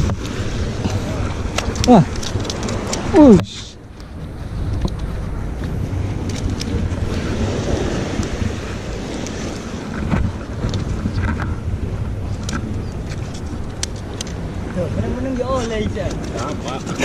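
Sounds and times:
sea washing against breakwater: 0.0 - 17.0
wind buffeting microphone: 0.0 - 17.0.

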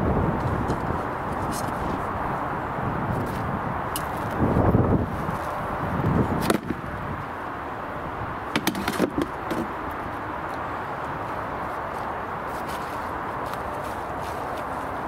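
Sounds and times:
spade thuds and scrapes in soil: 6.4 - 6.8
sharp knocks: 8.5 - 9.7.

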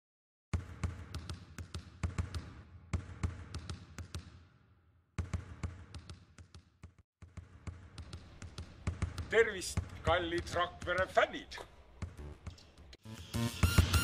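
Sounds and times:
basketballs bouncing in echoing hall: 0.5 - 12.9.

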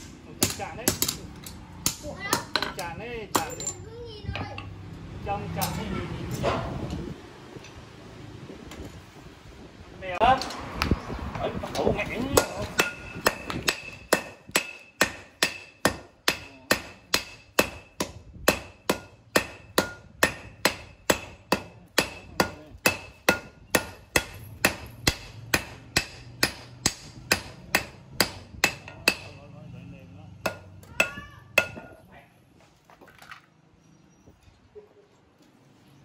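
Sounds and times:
hammer striking steel on anvil: 0.0 - 3.8, 12.3 - 29.5, 30.4 - 32.0.

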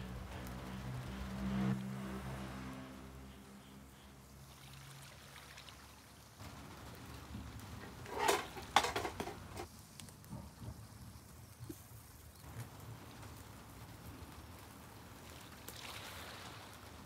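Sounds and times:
meat sizzling over charcoal: 6.4 - 17.0.

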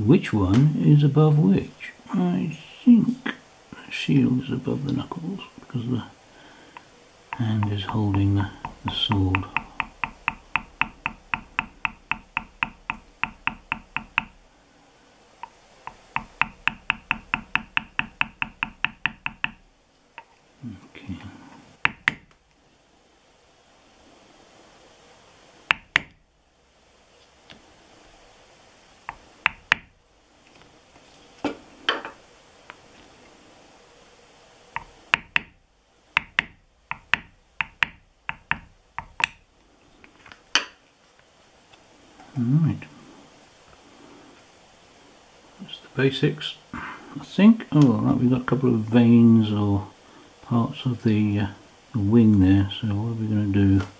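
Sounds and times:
mallet tapping tool into leather: 7.3 - 14.4, 15.4 - 19.6, 29.1 - 29.9, 36.2 - 39.4.

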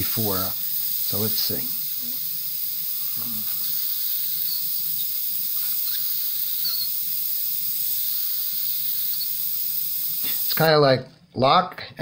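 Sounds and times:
airbrush hissing: 0.0 - 10.8.

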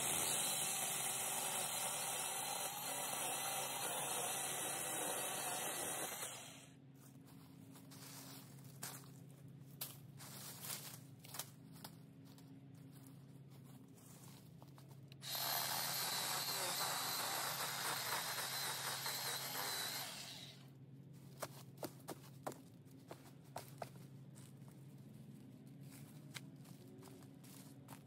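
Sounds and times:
power saw whining: 0.0 - 6.7, 15.2 - 20.6.

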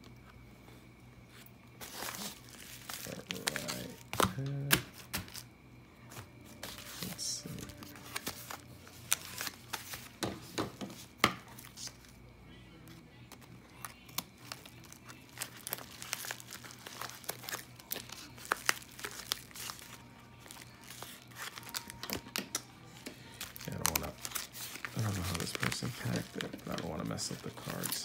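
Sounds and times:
paper mailer crinkling: 1.8 - 5.5, 6.1 - 10.2, 13.4 - 22.4, 23.2 - 28.0.

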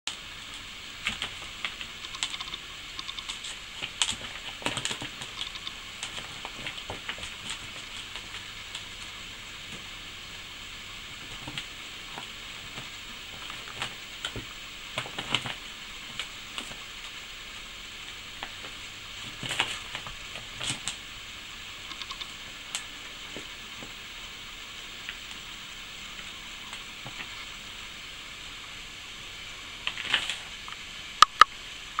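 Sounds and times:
background hiss: 0.1 - 32.0
sharp clicks: 1.6 - 4.2, 21.8 - 22.4, 30.7 - 32.0
paper and plastic bag rustling: 3.4 - 9.9, 11.1 - 16.9, 18.3 - 21.0, 29.9 - 30.5.

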